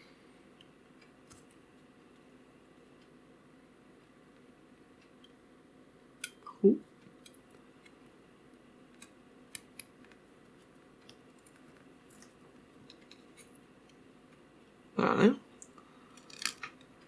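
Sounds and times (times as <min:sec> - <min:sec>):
small metal clicks and scrapes: 0:16.1 - 0:16.9.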